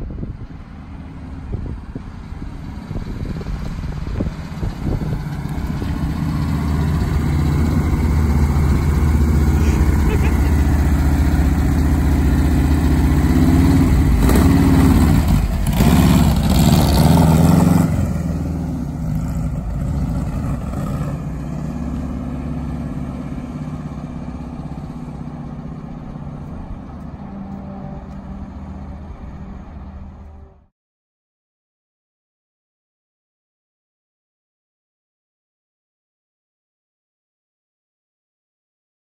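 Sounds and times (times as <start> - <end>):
van engine revving: 0.8 - 30.4.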